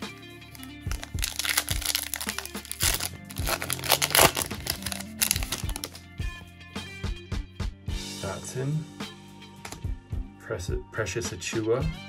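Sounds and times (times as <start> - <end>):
background music with steady beat: 0.0 - 12.0
foil wrapper crinkling: 0.5 - 6.0.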